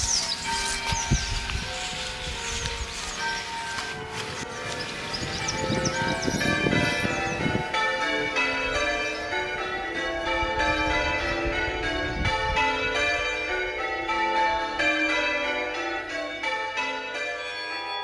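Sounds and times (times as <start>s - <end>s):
church bells ringing: 0.0s - 18.0s.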